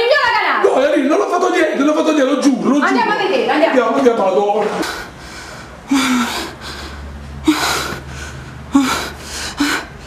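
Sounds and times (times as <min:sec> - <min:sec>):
person gasping: 0:04.8 - 0:10.0.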